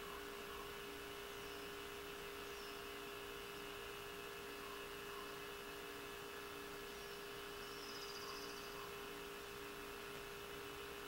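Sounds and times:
electrical hum with hiss: 0.0s - 11.0s.

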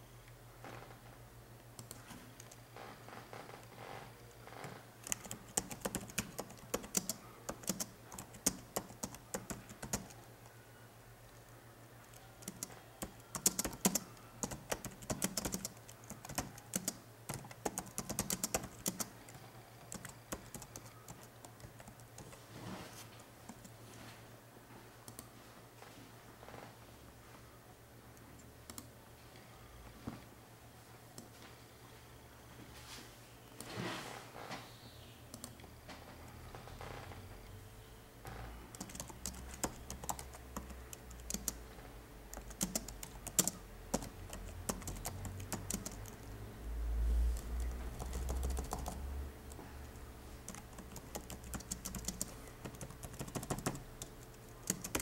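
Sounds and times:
faint low hum: 0.0s - 55.0s
typing on computer keyboard: 5.0s - 10.3s, 12.0s - 22.4s, 38.7s - 41.6s, 42.3s - 46.3s, 47.3s - 49.6s, 50.5s - 55.0s.

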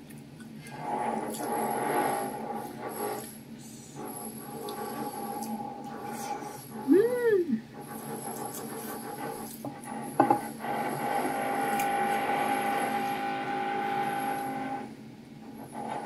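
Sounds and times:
power tool whining: 10.2s - 14.9s.

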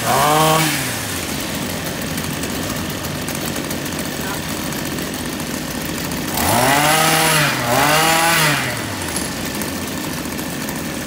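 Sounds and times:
brush cutter engine revving: 0.0s - 11.0s
machines idling: 0.0s - 11.0s.

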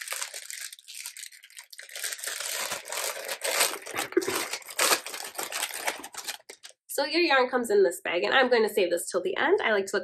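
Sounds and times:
plastic bags crinkling: 0.0s - 6.8s.

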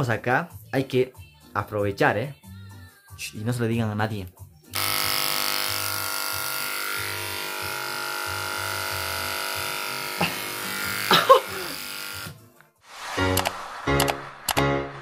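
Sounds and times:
electric hair clippers buzzing: 4.7s - 12.4s.

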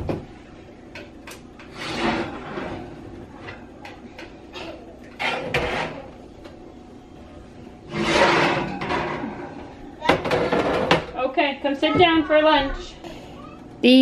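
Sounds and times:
metal baking pans clattering: 1.0s - 6.1s, 7.9s - 11.5s
heavy clunk with scrape: 1.6s - 2.9s, 5.2s - 6.0s, 7.9s - 11.1s.

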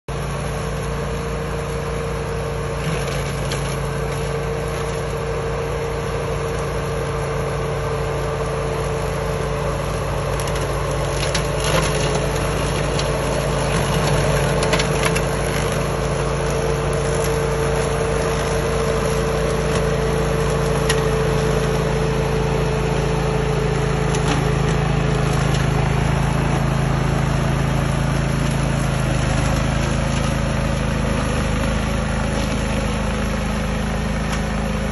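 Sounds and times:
ride-on mower engine running: 0.1s - 34.9s
cutting deck hum: 8.2s - 34.9s.

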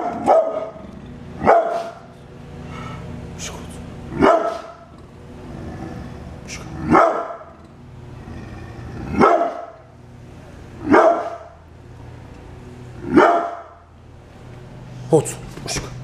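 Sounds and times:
dog barking deeply: 0.0s - 2.1s, 4.1s - 4.9s, 6.6s - 7.6s, 8.8s - 9.8s, 10.8s - 11.6s, 13.0s - 13.8s.

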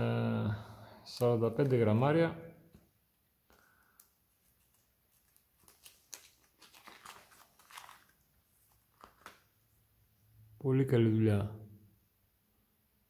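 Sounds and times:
plastic blister pack crinkling: 3.5s - 9.6s.

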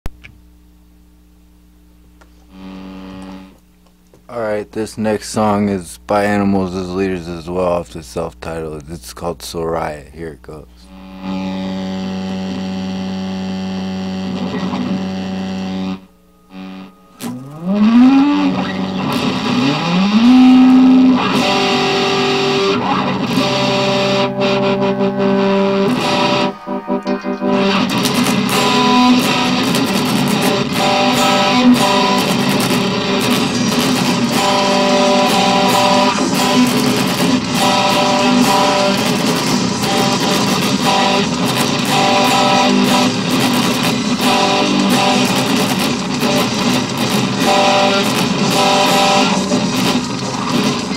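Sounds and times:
electric guitar playing: 10.7s - 50.9s.

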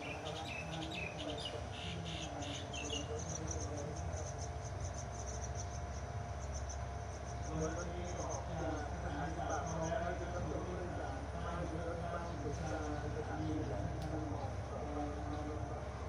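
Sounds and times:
bird chirps: 0.0s - 3.3s
insects chirping: 0.0s - 10.1s.

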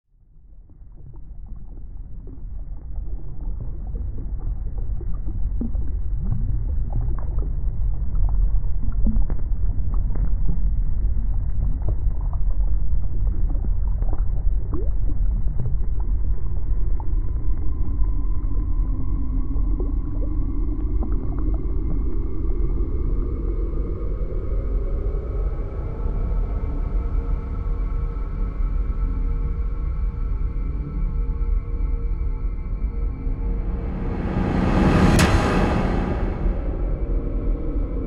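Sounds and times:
steady droning tone: 30.8s - 38.0s
deep muffled rumble: 32.6s - 38.0s.

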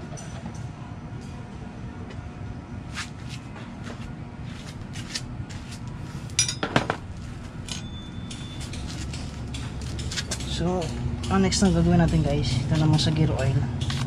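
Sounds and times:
bright clinks: 6.4s - 6.7s, 7.6s - 10.5s.

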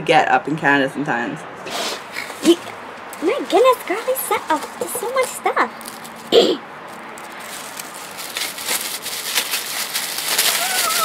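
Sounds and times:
tissue paper crinkling: 3.2s - 11.0s
short vocal sound: 6.3s - 6.6s.

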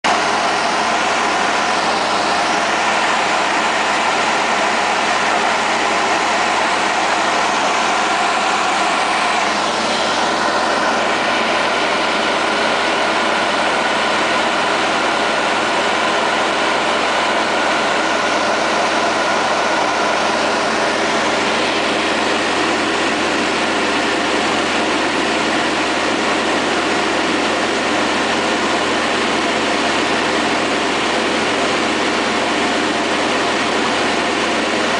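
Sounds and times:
aircraft engine and propeller drone: 0.1s - 34.9s
rushing air: 0.2s - 24.0s.

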